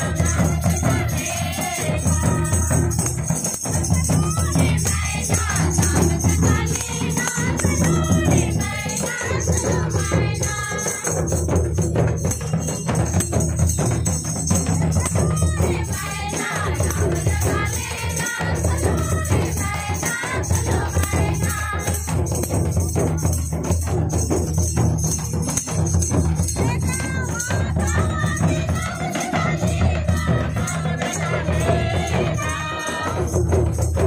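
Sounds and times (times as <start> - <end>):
women singing together: 0.0 - 11.8, 14.2 - 23.2, 26.4 - 34.0
barrel drums beating: 0.0 - 34.0.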